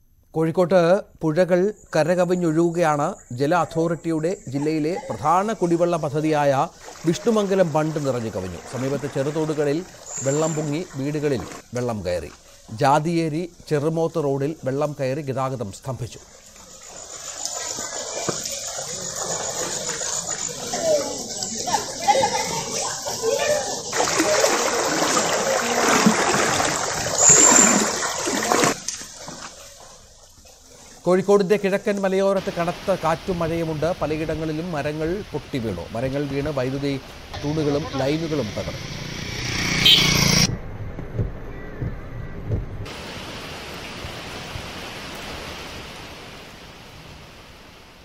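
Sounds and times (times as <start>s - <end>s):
floodwater rushing: 4.2s - 12.9s, 15.8s - 31.1s, 32.4s - 40.5s, 42.9s - 48.0s
heavy rain hissing: 4.5s - 15.4s, 16.0s - 29.4s, 30.1s - 40.2s, 42.9s - 48.0s
low thumps: 40.5s - 42.9s.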